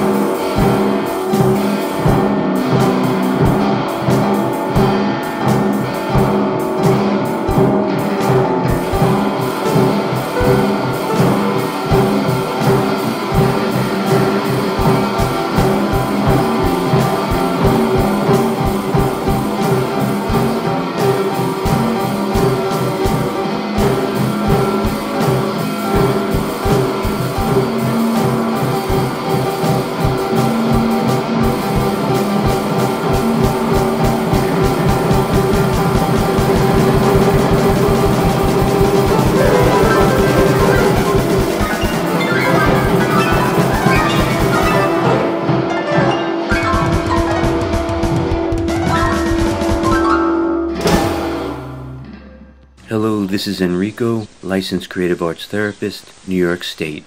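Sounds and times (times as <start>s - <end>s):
drums and percussion: 0.0s - 50.2s, 50.8s - 51.8s
electric guitar sustained notes: 1.6s - 45.6s.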